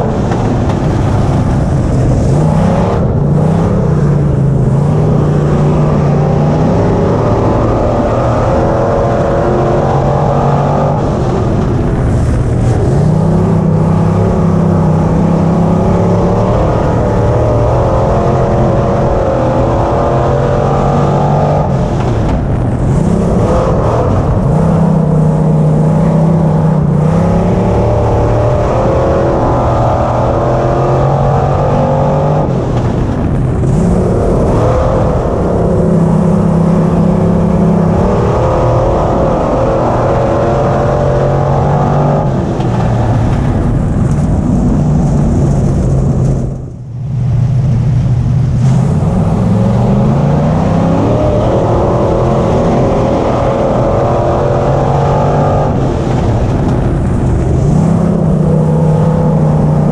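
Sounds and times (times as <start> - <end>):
race car engine running hard: 0.0 - 59.9.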